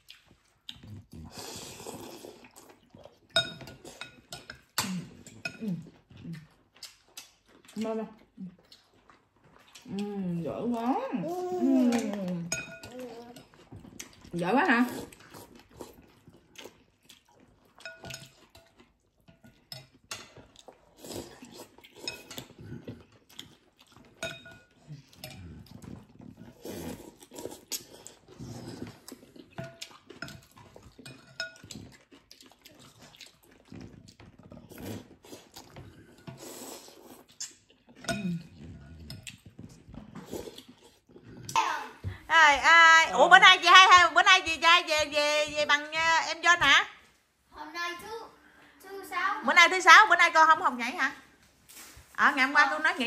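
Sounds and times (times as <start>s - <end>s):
slurping and eating noises: 0.0s - 42.3s
utensils clinking on ceramic bowls: 3.3s - 5.7s, 11.9s - 13.7s, 17.8s - 20.6s, 24.1s - 25.6s, 29.5s - 31.9s, 38.0s - 39.2s.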